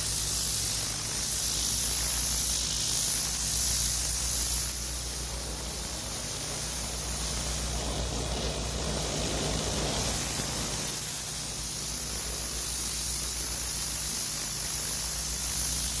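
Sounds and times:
high-pressure water spray hissing: 0.0 - 16.0
engine low hum: 4.8 - 12.5.

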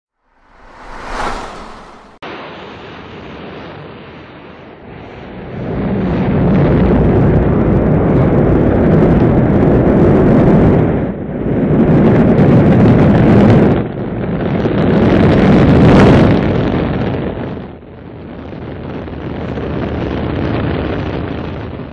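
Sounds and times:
rocket launch roar: 0.2 - 2.2.

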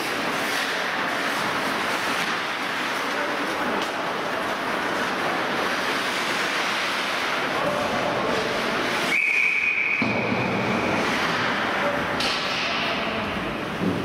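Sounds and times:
rushing rink noise: 0.0 - 14.0
referee whistle blast: 9.1 - 10.7.

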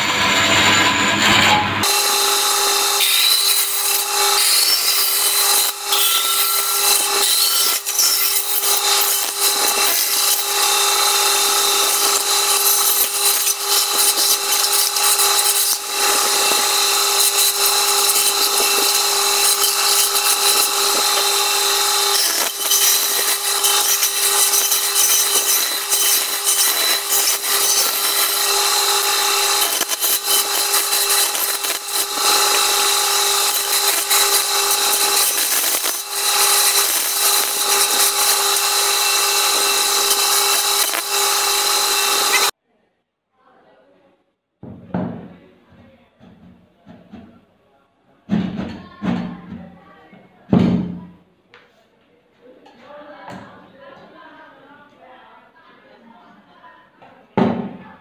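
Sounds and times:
band saw cutting wood: 0.0 - 42.5.

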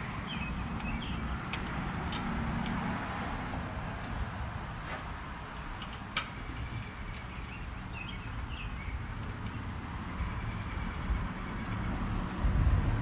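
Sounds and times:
light clicks of parts fitted: 0.8 - 2.8, 5.6 - 6.4.

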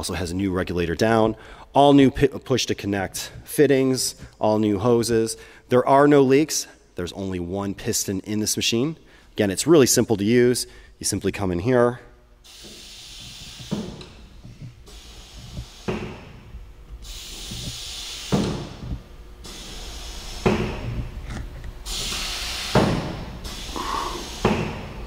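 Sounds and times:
compressed air hiss: 12.4 - 21.1, 21.8 - 25.0
clamp thuds: 17.5 - 19.0, 22.7 - 23.3.

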